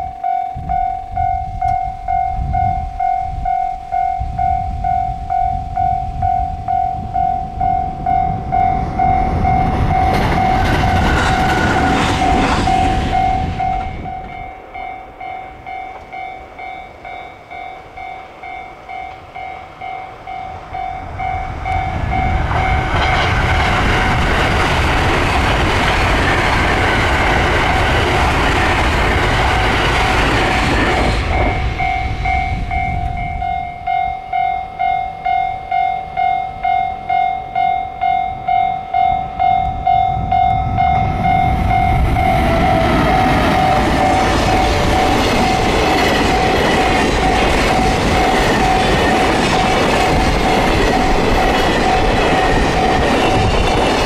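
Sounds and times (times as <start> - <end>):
level crossing bell dinging: 0.0 - 10.8
electric trains passing: 0.0 - 54.0.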